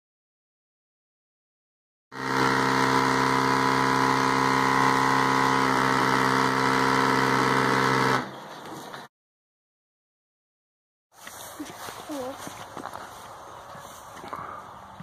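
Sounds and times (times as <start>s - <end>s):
electric motor hum: 2.2s - 8.4s.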